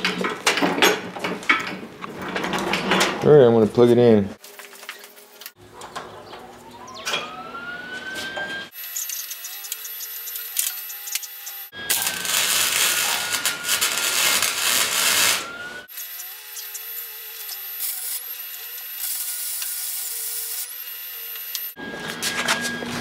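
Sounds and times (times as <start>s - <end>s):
welding arc crackling and hissing: 8.7s - 21.8s.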